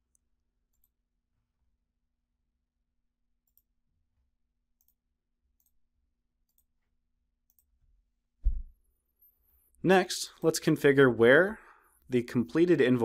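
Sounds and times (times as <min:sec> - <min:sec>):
faint computer mouse clicks: 0:07.5 - 0:07.7
low thump: 0:08.4 - 0:08.7.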